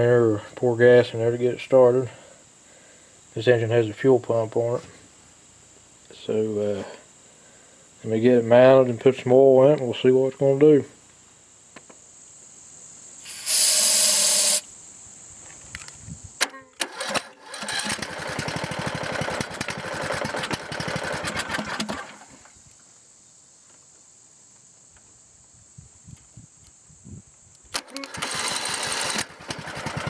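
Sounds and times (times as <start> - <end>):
loud hiss: 11.0 - 17.9
engine cranked by electric starter: 16.4 - 22.5, 27.7 - 30.0.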